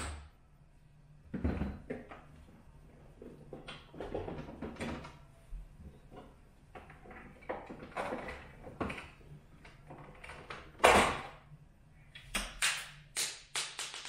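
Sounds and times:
plastic parts scraping and knocking: 1.3s - 5.2s, 5.9s - 11.0s.

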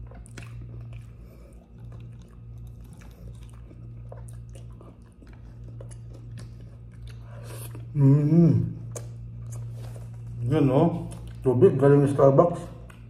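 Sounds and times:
person chewing crunchy food: 0.0s - 11.7s
steady low hum: 0.0s - 13.0s.

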